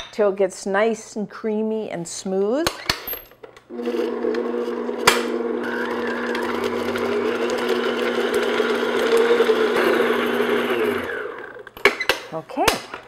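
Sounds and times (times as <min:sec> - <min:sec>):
paddle beating butter in bowl: 0:03.7 - 0:11.4
stand mixer motor running: 0:03.7 - 0:11.6.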